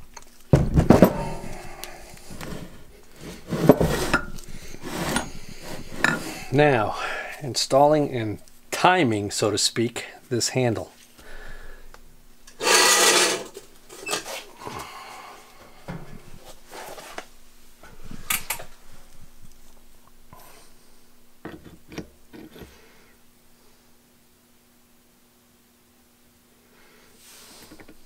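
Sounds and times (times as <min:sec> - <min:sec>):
loud rustling scrape: 0:02.2 - 0:06.5, 0:12.6 - 0:14.5, 0:16.4 - 0:17.3.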